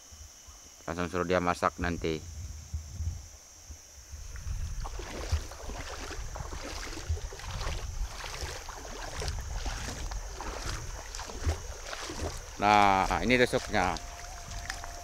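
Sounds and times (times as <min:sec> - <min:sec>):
river water sloshing and splashing: 0:04.2 - 0:15.0.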